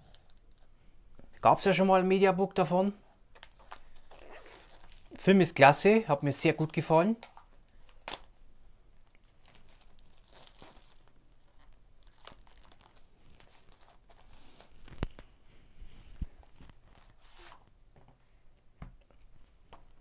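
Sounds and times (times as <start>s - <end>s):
packaging tearing and crinkling: 3.6s - 5.2s, 7.2s - 8.3s, 9.0s - 15.1s, 16.4s - 17.6s.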